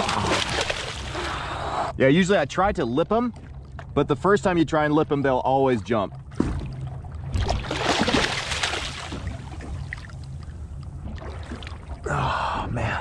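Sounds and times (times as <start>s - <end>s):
fish thrashing and water splashing: 0.0s - 1.6s, 6.2s - 12.0s
steady low hum: 0.0s - 13.0s.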